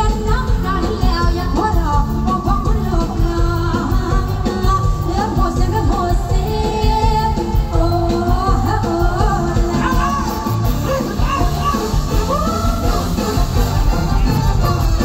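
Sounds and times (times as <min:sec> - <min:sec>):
live band driving beat: 0:00.0 - 0:15.0
person singing melody: 0:07.7 - 0:15.0.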